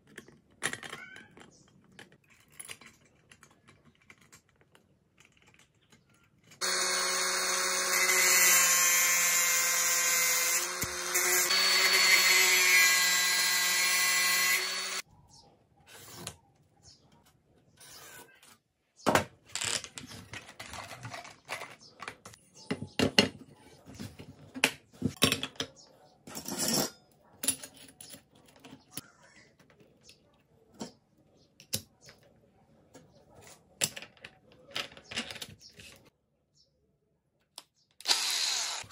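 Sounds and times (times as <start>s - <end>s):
power tool motor running: 6.6s - 15.0s, 38.0s - 38.9s.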